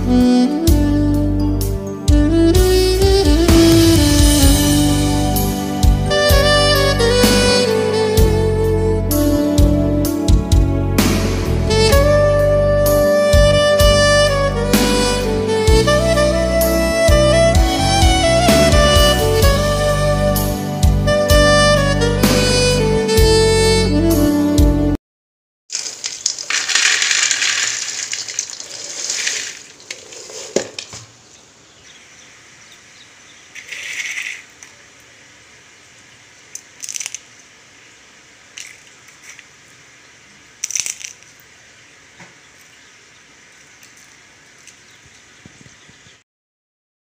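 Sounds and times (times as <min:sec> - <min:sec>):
fried snack rustling on plate: 0:25.7 - 0:30.7, 0:40.6 - 0:41.3
dry crunchy rattling: 0:25.7 - 0:31.2.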